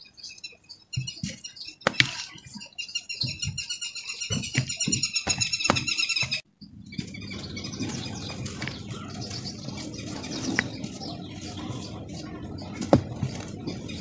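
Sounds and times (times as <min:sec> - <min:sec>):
sharp crack: 0:01.8 - 0:02.3
dry dirt crumbling by hand: 0:07.6 - 0:14.0.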